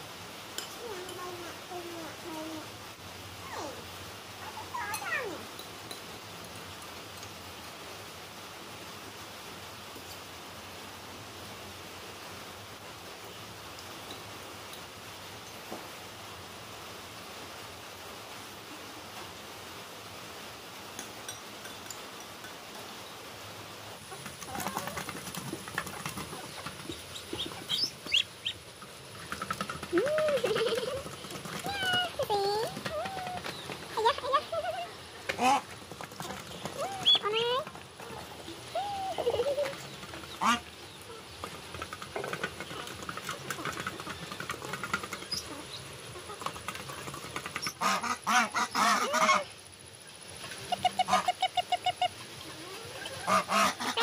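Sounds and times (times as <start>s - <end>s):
geese honking: 40.3s - 40.7s, 47.7s - 49.5s, 50.6s - 52.3s, 53.0s - 54.0s.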